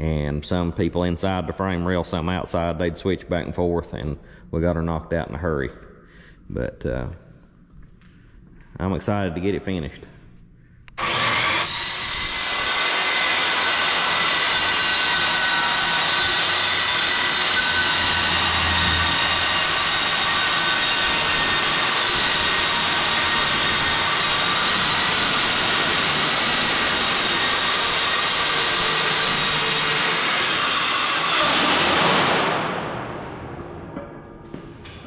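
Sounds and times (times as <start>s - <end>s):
angle grinder grinding steel: 11.0s - 32.5s.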